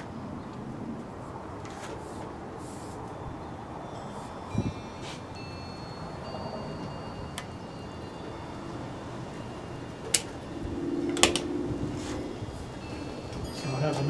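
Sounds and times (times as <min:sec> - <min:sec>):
low steady hum: 0:03.0 - 0:13.8.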